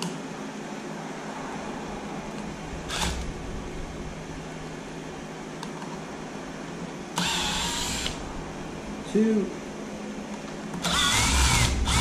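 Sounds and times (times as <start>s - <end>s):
background hiss and hum: 0.0s - 12.0s
cordless drill whirring: 2.9s - 3.2s, 7.2s - 8.2s, 10.8s - 12.0s.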